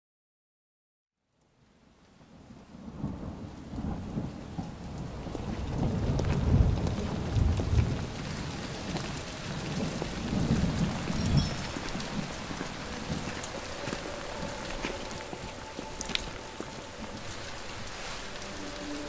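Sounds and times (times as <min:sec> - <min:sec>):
steady rain: 0:01.2 - 0:19.0
rolling thunder: 0:02.8 - 0:13.4.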